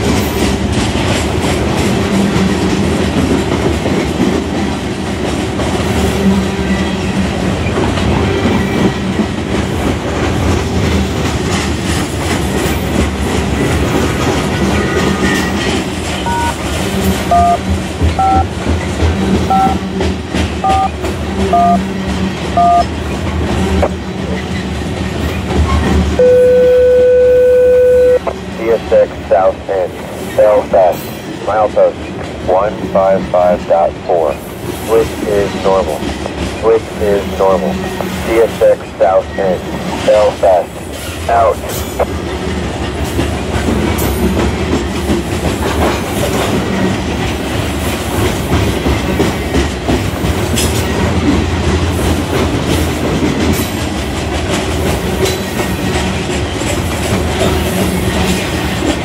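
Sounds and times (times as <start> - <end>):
train wheels rumbling on rail: 0.0 - 26.2, 28.2 - 59.0
steady radio tone: 16.3 - 16.6, 17.3 - 17.6, 18.2 - 18.5, 19.5 - 19.8, 20.6 - 20.9, 21.5 - 21.8, 22.6 - 22.8, 26.2 - 36.0, 36.6 - 42.1
touch-tone beeps over radio: 16.3 - 16.6, 17.3 - 17.6, 18.2 - 18.5, 19.5 - 19.8, 20.6 - 20.9, 21.5 - 21.8, 22.6 - 22.9, 26.2 - 34.3, 34.9 - 36.0, 36.6 - 40.7, 41.3 - 41.6.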